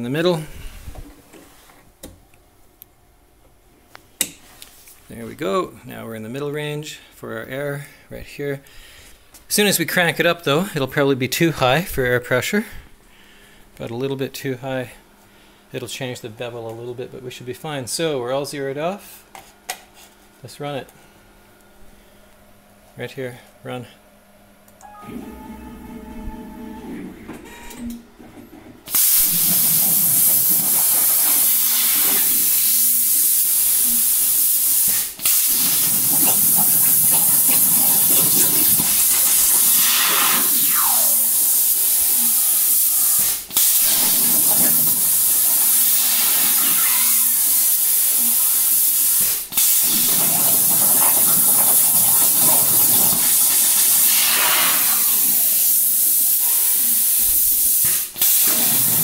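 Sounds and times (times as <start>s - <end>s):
plasma cutter torch hissing: 28.9s - 59.0s.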